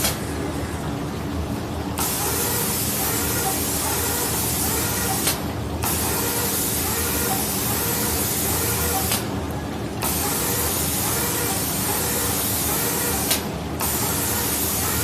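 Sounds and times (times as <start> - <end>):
steady low hum: 0.0 - 15.0
spray gun hissing: 2.0 - 9.2, 10.0 - 15.0.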